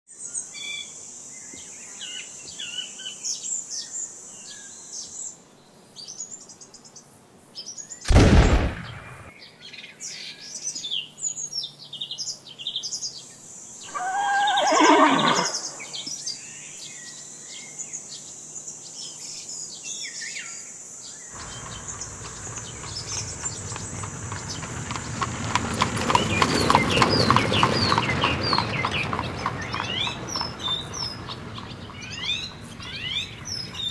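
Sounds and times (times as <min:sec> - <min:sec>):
birdsong chirping: 0:08.1 - 0:09.3, 0:13.8 - 0:16.7, 0:21.2 - 0:33.9
pistol shot: 0:08.1 - 0:09.3
horse whinnying: 0:13.9 - 0:16.1
clatter with rapid ticking: 0:21.4 - 0:33.9.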